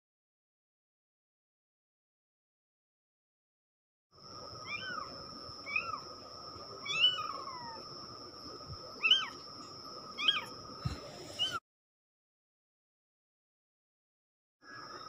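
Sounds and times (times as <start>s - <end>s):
kitten meowing: 4.6s - 5.1s, 6.8s - 7.8s, 9.0s - 9.4s, 10.2s - 10.5s.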